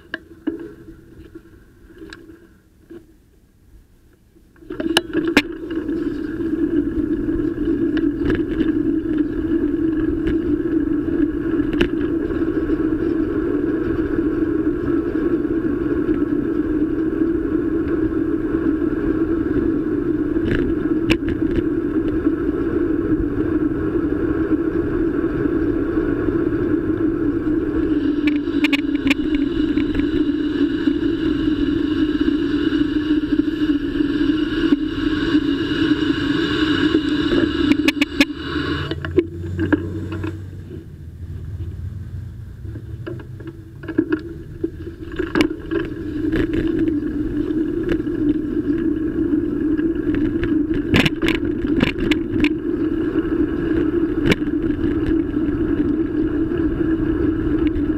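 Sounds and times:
bicycle camera mount rumble and rattle: 4.6 - 30.3, 42.7 - 57.9.

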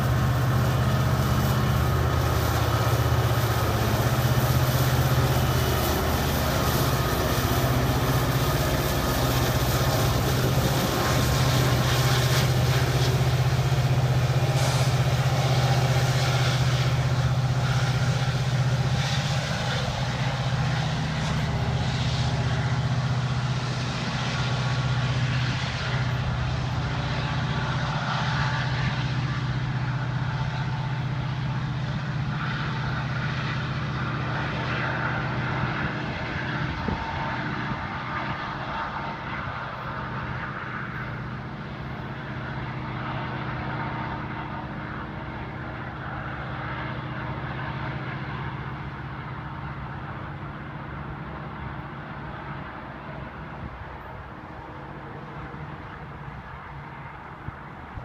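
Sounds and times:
diesel locomotive engine drone: 0.0 - 58.0
train rumble: 0.0 - 58.0.

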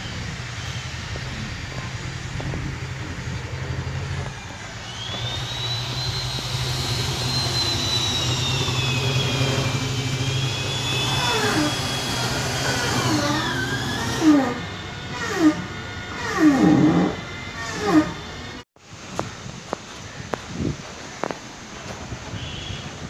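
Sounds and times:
high wavering whine: 0.0 - 18.6
low engine hum: 0.0 - 18.6
short gliding tones: 1.2 - 18.6.

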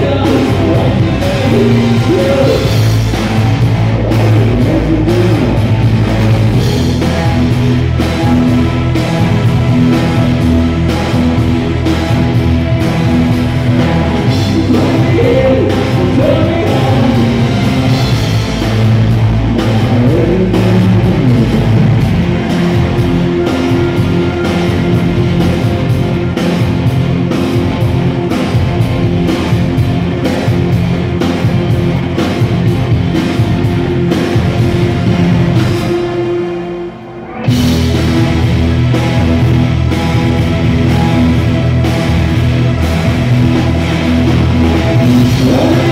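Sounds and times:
man singing: 0.0 - 2.9, 3.9 - 5.8, 14.3 - 17.9, 19.5 - 22.1, 45.2 - 45.9
live rock band: 0.0 - 45.9.

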